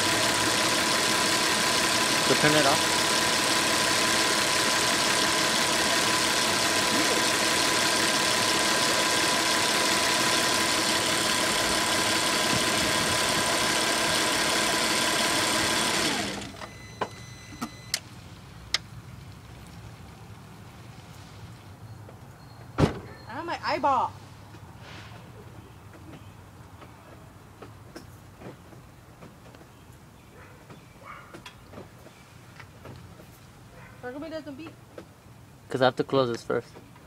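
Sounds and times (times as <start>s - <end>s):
car engine running: 0.0s - 20.9s.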